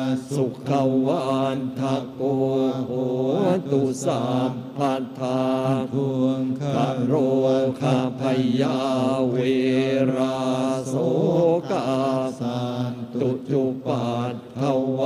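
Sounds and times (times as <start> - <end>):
monks chanting in unison: 0.0 - 15.0.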